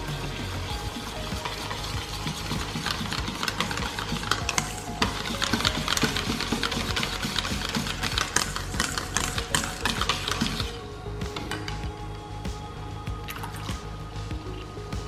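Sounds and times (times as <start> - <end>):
utensil whisking in a bowl: 0.0 - 11.9.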